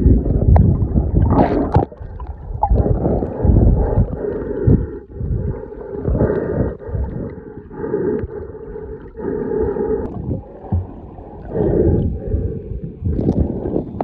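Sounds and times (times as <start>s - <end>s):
muffled underwater gurgling: 0.0s - 14.0s.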